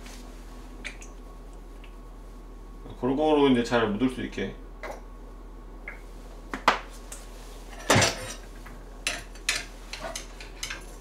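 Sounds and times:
utensils clinking against dishes: 9.0s - 11.0s.

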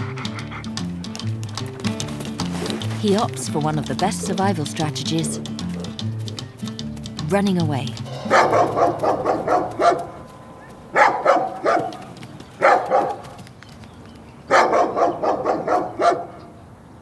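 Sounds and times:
dog barking: 5.7s - 6.0s, 8.1s - 13.3s, 14.5s - 16.4s.

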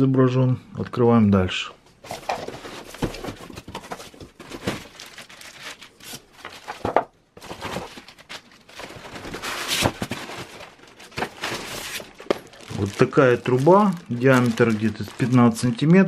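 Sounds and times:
cardboard and plastic rustling: 2.0s - 16.0s.

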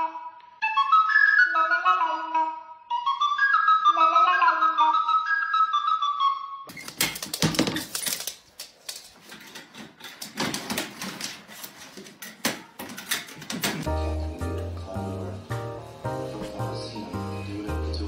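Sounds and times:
recorder tune: 13.9s - 18.0s.

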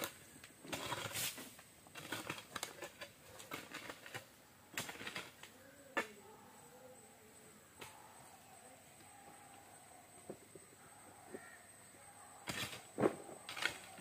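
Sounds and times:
shovel digging damp earth: 0.0s - 6.2s, 12.4s - 14.0s.

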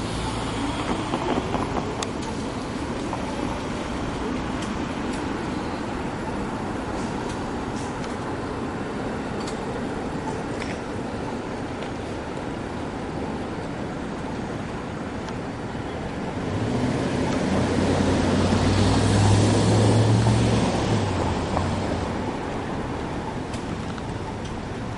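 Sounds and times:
street traffic: 0.0s - 24.9s
vehicle passing close by: 16.4s - 22.4s.

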